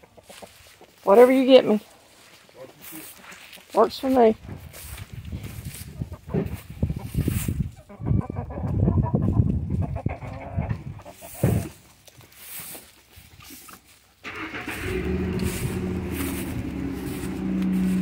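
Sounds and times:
engine running with low hum: 0:14.2 - 0:18.0.

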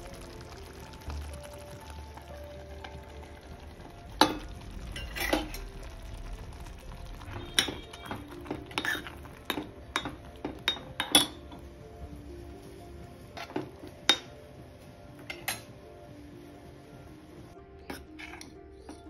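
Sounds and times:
spoon stirring in metal pot: 0:04.2 - 0:05.7, 0:07.4 - 0:11.7, 0:17.8 - 0:19.0.

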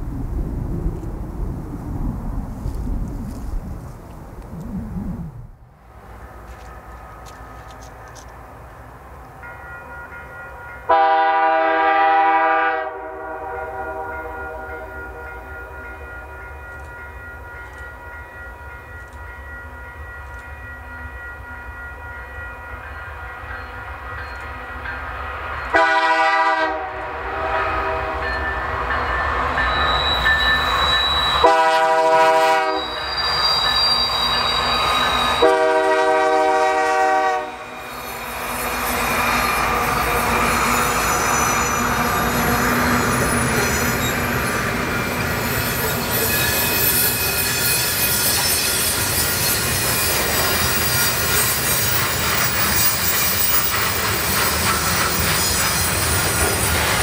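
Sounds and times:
train rumbling past: 0:00.0 - 0:57.0
locomotive air horn blasts: 0:10.9 - 0:15.4, 0:25.7 - 0:28.3, 0:31.4 - 0:33.0, 0:35.4 - 0:37.8
train wheel squeal: 0:22.6 - 0:26.0, 0:27.8 - 0:57.0.

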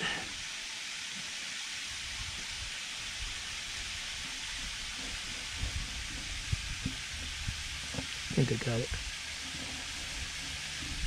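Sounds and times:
steady hiss: 0:00.0 - 0:11.0
faint low knocks: 0:04.6 - 0:11.0.

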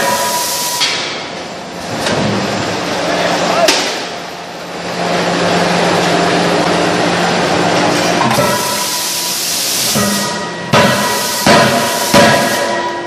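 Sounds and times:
machinery hiss: 0:00.0 - 0:00.9, 0:08.4 - 0:12.8
machinery hum: 0:00.0 - 0:13.0.

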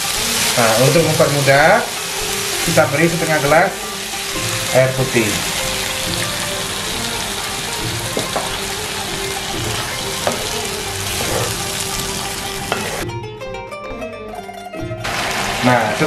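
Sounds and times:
paste sizzling in a frying pan: 0:00.0 - 0:13.0, 0:15.0 - 0:16.0
wooden spatula scraping a pan: 0:11.1 - 0:11.9.

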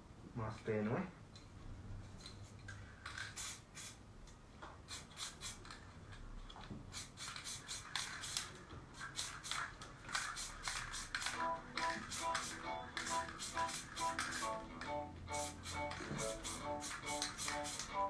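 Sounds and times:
spray paint can hissing: 0:03.2 - 0:04.0, 0:04.9 - 0:05.8, 0:06.9 - 0:14.6, 0:15.3 - 0:18.0
musical tones: 0:11.4 - 0:18.0.

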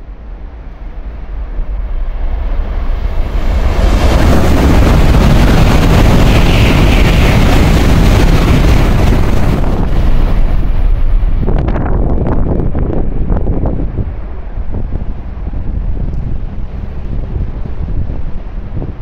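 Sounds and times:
train rushing past: 0:00.0 - 0:19.0
wind buffeting microphone: 0:00.0 - 0:19.0.

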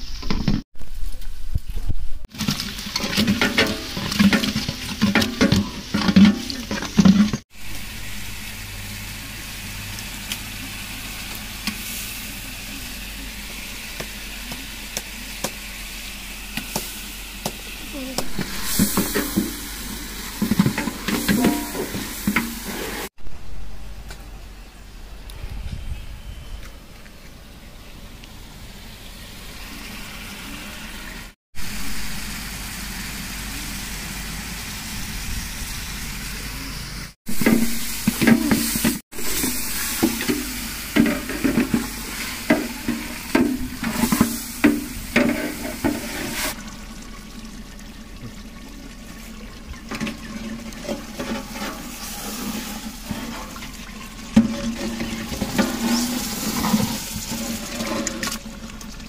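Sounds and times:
curry bubbling and sizzling: 0:02.2 - 0:23.1, 0:37.3 - 0:59.0
ladle knocking and scraping pot: 0:02.9 - 0:07.4, 0:20.4 - 0:22.8, 0:37.4 - 0:46.6, 0:49.9 - 0:53.7, 0:54.3 - 0:58.3.

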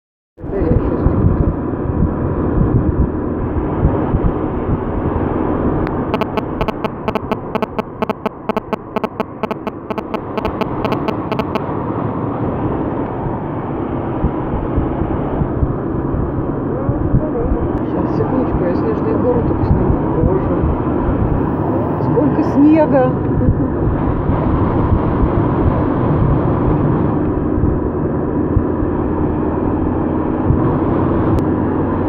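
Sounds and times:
vehicle road noise rumble: 0:00.4 - 0:32.0
fast even ticks: 0:06.2 - 0:11.6.

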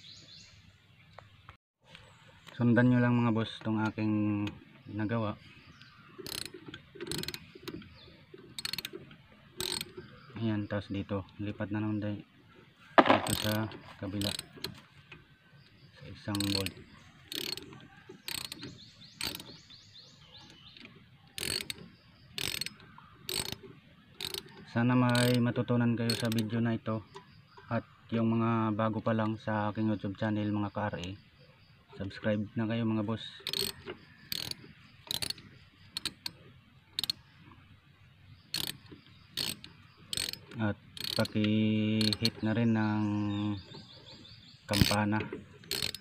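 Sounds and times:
ratchet wrench clicking: 0:06.2 - 0:10.1, 0:13.0 - 0:14.8, 0:16.2 - 0:19.6, 0:21.4 - 0:26.5, 0:33.4 - 0:37.2, 0:38.5 - 0:42.4, 0:44.7 - 0:46.0.

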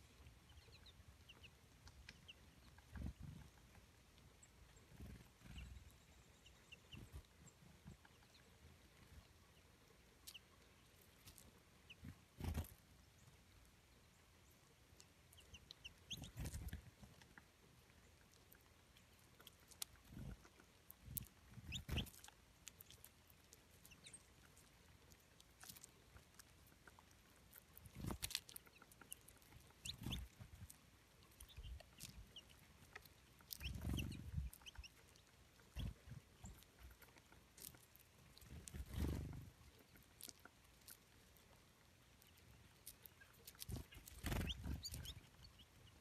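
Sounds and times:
birds pecking seed: 0:00.0 - 0:46.0
high bird chirps: 0:33.6 - 0:34.9, 0:43.7 - 0:45.7
wing flutters: 0:43.6 - 0:45.2.

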